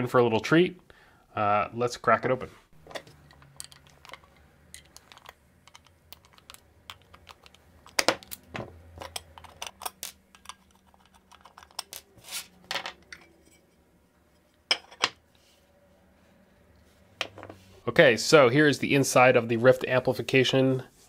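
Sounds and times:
metallic clicks and scrapes: 0:02.8 - 0:14.6.

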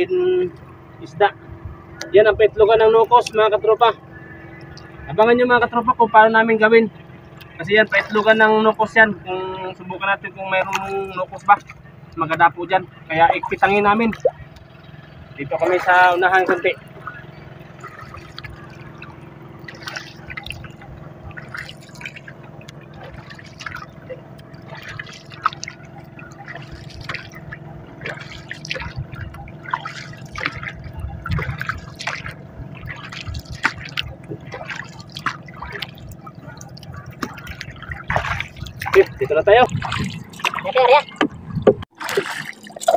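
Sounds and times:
steady low hum: 0:00.0 - 0:42.9
water splashing against boat: 0:00.0 - 0:42.9.

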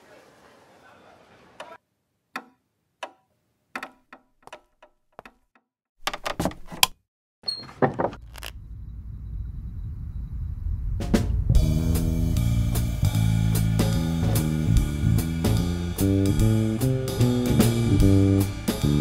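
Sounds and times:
door opening and shutting: 0:06.0 - 0:08.6
low rumble: 0:08.2 - 0:16.6.

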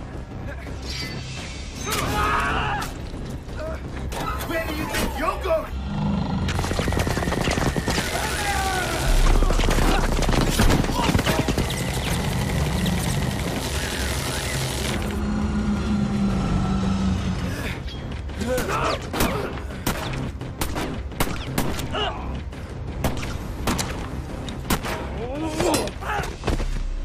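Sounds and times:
low drone: 0:05.6 - 0:19.8
sharp cracks and impacts: 0:06.5 - 0:15.0.

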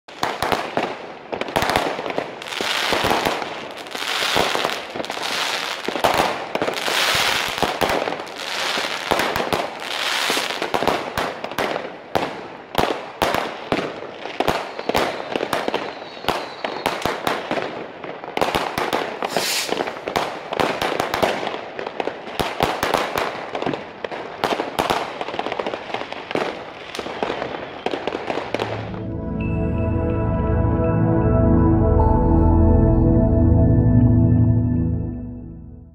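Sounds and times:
fireworks bangs and crackles: 0:00.1 - 0:29.0.

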